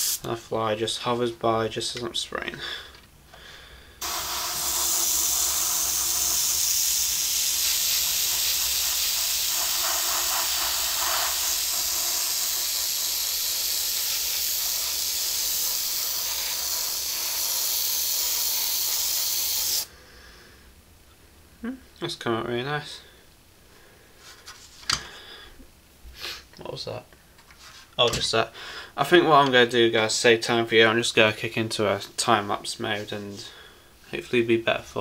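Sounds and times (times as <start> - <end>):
spray paint hissing: 0.0 - 0.3, 4.0 - 19.9.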